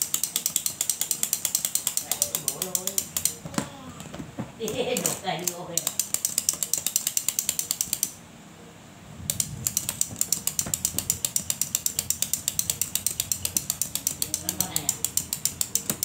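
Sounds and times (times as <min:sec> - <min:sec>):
toy gear mechanism clicking: 0:00.0 - 0:03.6, 0:04.7 - 0:08.2, 0:09.3 - 0:16.0.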